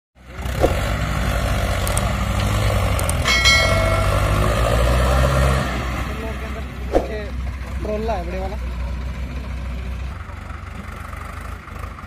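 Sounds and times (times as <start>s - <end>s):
tractor diesel engine under load: 0.2s - 12.0s
metallic clang: 3.3s - 5.8s.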